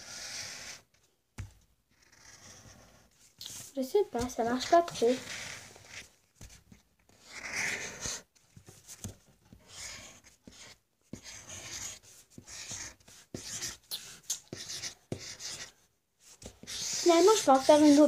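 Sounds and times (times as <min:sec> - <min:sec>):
pencil scribbling on paper: 0:02.0 - 0:03.6, 0:04.2 - 0:08.2, 0:09.6 - 0:18.0.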